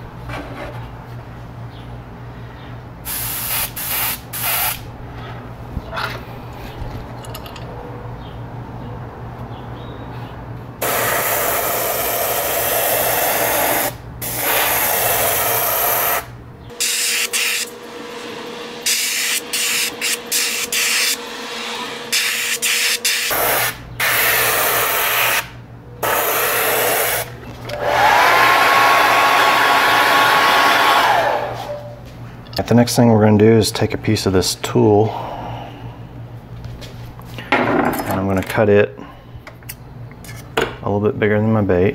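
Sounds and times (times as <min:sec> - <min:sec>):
airbrush spraying hiss: 0:03.1 - 0:04.8, 0:10.8 - 0:27.3
hair dryer whine: 0:10.8 - 0:25.4, 0:26.0 - 0:32.1.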